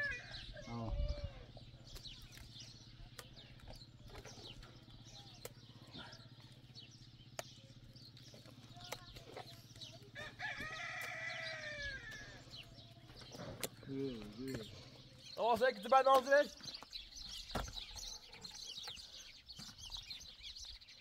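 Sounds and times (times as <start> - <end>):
small birds chirping: 0.0 - 21.0
rooster crowing: 10.2 - 12.4.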